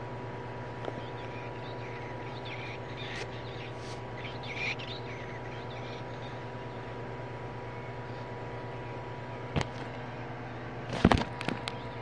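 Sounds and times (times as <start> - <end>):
steady hum: 0.0 - 12.0
toy speaker bird chirps: 1.0 - 6.4.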